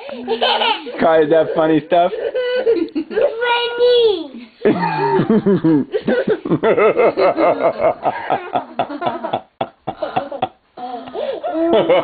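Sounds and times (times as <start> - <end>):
toddler giggling: 0.0 - 3.6, 6.0 - 12.0.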